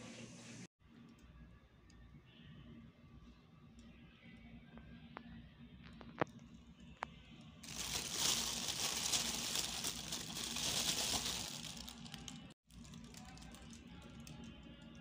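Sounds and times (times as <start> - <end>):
plastic bag crinkling: 7.7 - 14.3.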